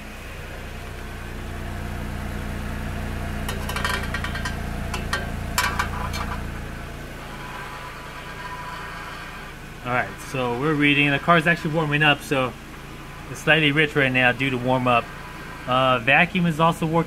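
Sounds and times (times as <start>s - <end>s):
car engine idling: 0.0s - 17.0s
sharp clicks and rattles: 3.4s - 6.7s.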